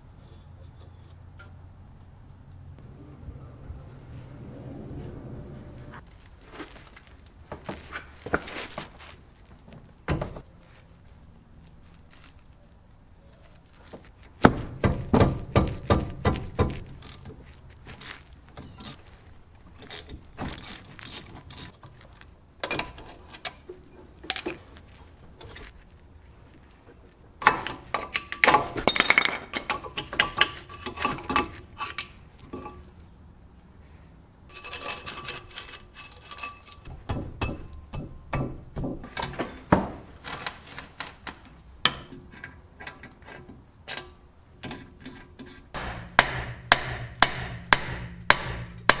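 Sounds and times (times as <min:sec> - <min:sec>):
metal tools clinking and knocking: 0:27.4 - 0:32.9, 0:34.5 - 0:38.2, 0:41.9 - 0:46.8.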